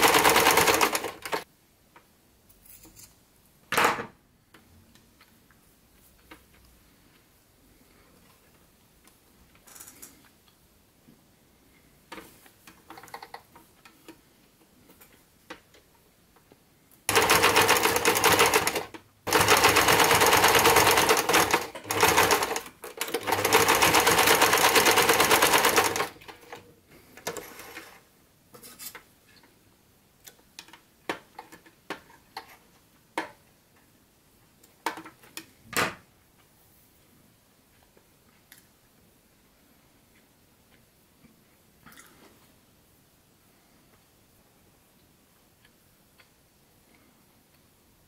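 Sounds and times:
electric sewing machine stitching: 0.0 - 1.4, 17.1 - 26.5.

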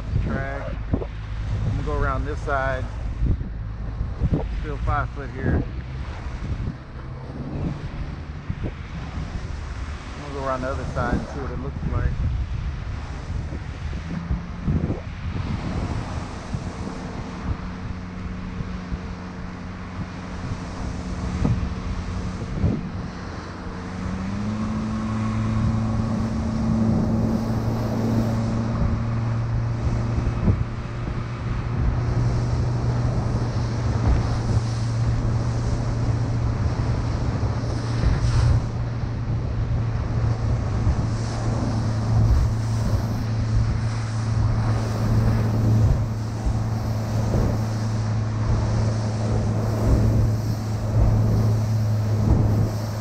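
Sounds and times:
boat engine running: 0.0 - 53.0
water splashing against hull: 0.0 - 53.0
wind buffeting microphone: 0.0 - 53.0.

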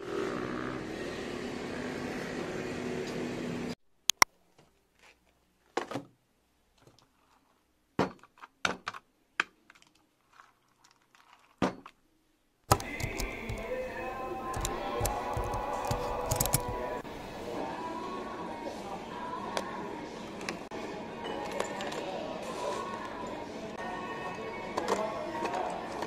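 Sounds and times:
street traffic: 0.0 - 4.2, 12.7 - 17.4
objects clicking and knocking: 12.7 - 17.0
cafe background noise: 12.7 - 26.0.

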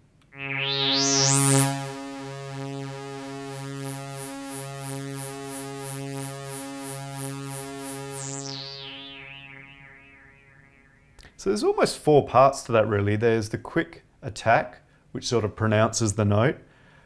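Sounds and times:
synthesizer low note: 0.3 - 12.1.

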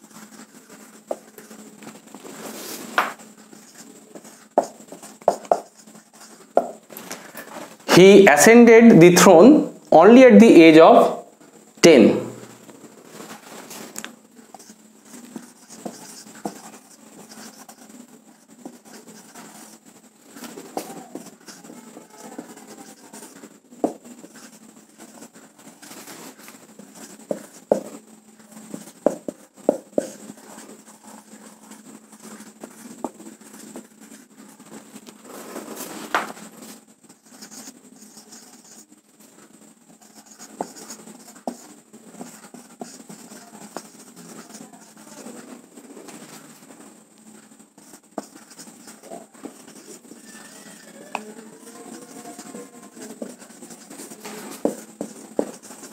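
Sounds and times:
marker scratching on whiteboard: 0.0 - 1.6, 2.3 - 6.9, 14.5 - 34.3, 35.4 - 38.9, 39.9 - 45.5, 47.8 - 55.9
marker tip tapping board: 4.6 - 5.7, 6.6 - 6.8, 27.3 - 27.9, 29.0 - 30.1.

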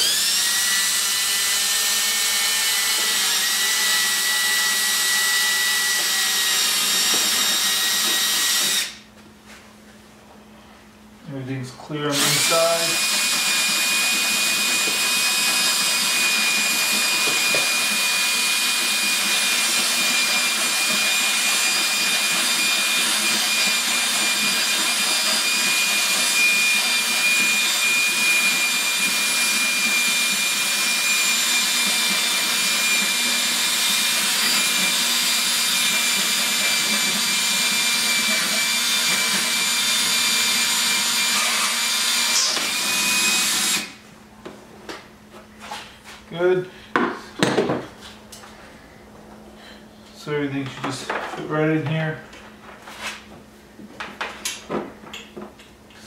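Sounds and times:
cordless drill boring plastic: 0.0 - 9.0, 12.1 - 44.0.

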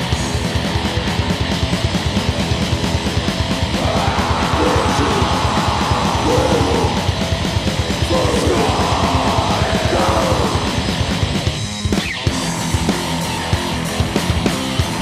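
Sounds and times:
bass guitar: 0.0 - 15.0
distorted electric guitars: 0.0 - 15.0
very fast drumming: 0.0 - 15.0
harsh shouted vocals: 3.6 - 11.3.

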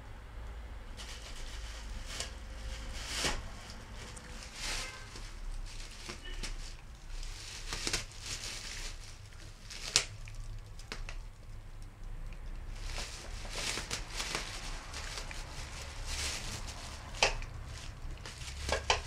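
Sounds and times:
plastic bags crinkling: 0.9 - 19.0.

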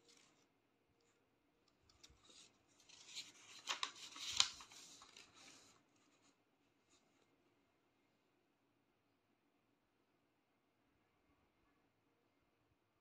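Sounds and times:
faint rustling and scraping: 0.0 - 7.4.

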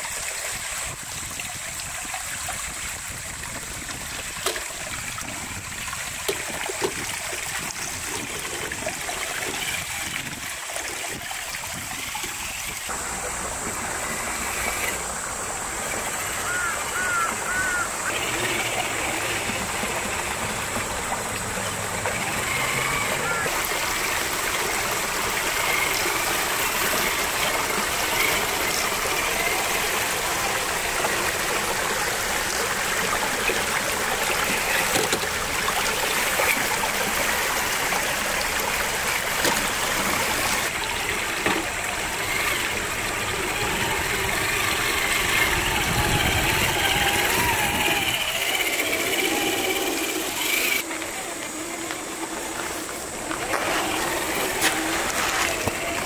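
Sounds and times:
rushing creek water: 0.0 - 56.0
electric motor whining: 11.8 - 31.8, 39.1 - 56.0.

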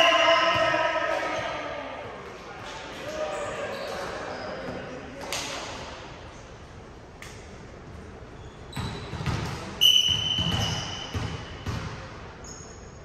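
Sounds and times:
shrill whistle blast: 9.8 - 11.1.

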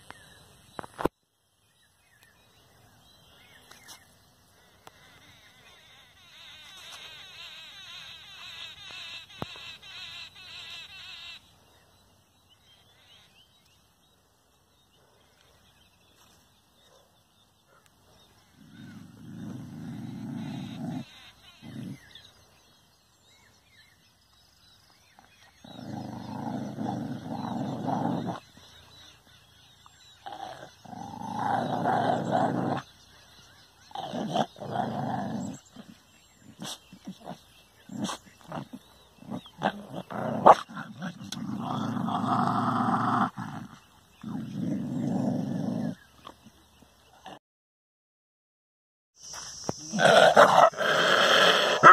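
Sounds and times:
dog growling: 18.5 - 22.2, 25.5 - 28.5, 30.1 - 33.0, 33.8 - 46.5, 49.9 - 51.9.

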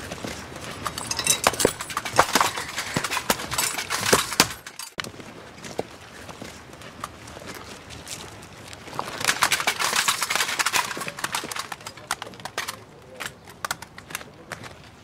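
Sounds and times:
footsteps knocking on rubble: 0.0 - 5.9.

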